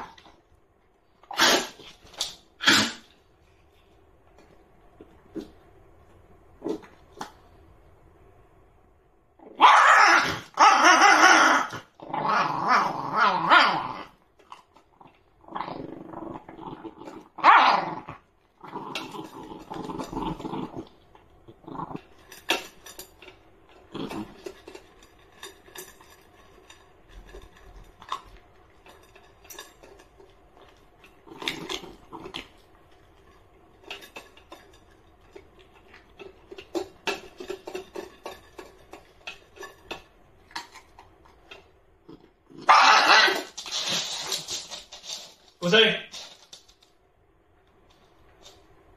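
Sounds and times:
puppy growling: 9.4s - 23.0s, 23.7s - 24.8s, 30.6s - 33.2s
kibble crunching in steel bowl: 9.4s - 46.9s.

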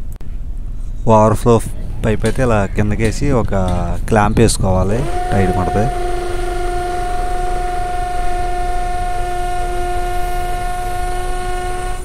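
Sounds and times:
cordless drill whining: 4.8s - 12.0s.

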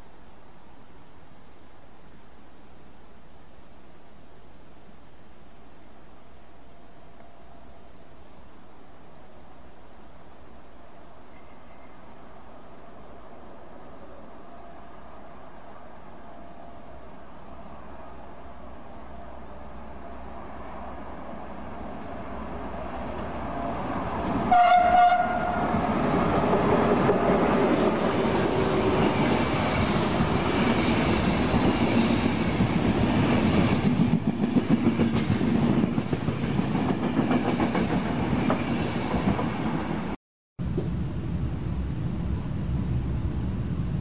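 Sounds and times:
running noise inside moving train: 0.0s - 44.0s
train horn blast: 24.5s - 25.8s
train wheels clattering on rails: 26.2s - 39.9s.

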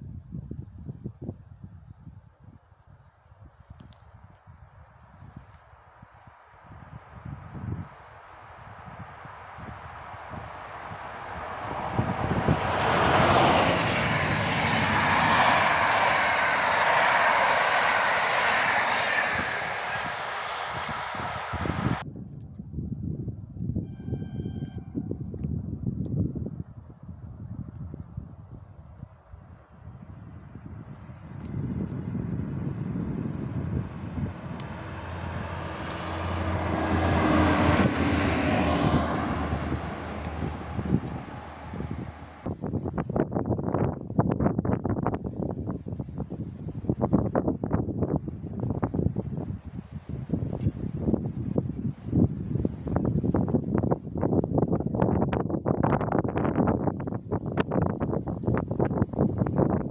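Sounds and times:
diesel railcar engine hum: 6.2s - 22.0s, 29.8s - 42.8s
train passing at speed: 6.7s - 22.0s, 30.9s - 42.5s
train wheel noise: 11.1s - 22.0s.

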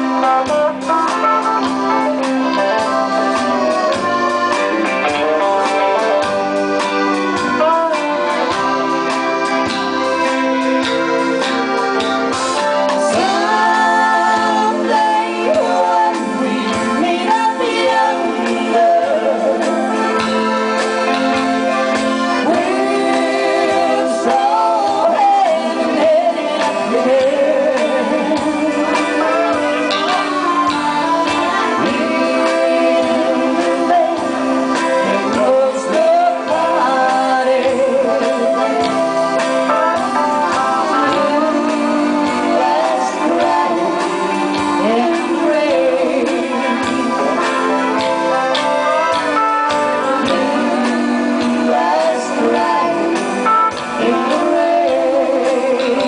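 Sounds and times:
accordion: 0.0s - 56.0s
electric guitars: 0.0s - 56.0s
woman singing a slow ballad: 13.0s - 20.0s, 22.4s - 38.9s, 40.8s - 47.8s, 50.0s - 56.0s.

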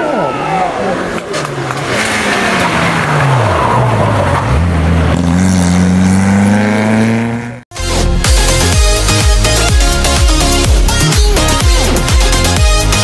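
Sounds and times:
rally car engine revving: 1.0s - 7.6s.

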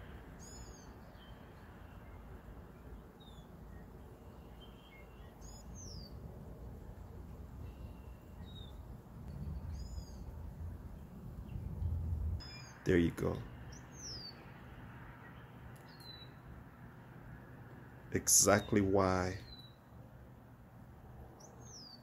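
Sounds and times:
soft bird chirps: 0.0s - 16.6s, 17.7s - 20.0s, 21.3s - 22.0s
background hiss: 0.0s - 22.0s
low rumble: 9.2s - 12.4s.

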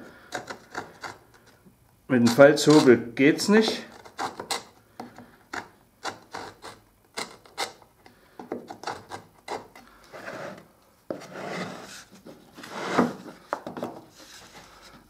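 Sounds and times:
marking gauge scratching wood: 0.2s - 1.5s, 2.2s - 4.8s, 5.6s - 7.9s, 8.6s - 13.2s.

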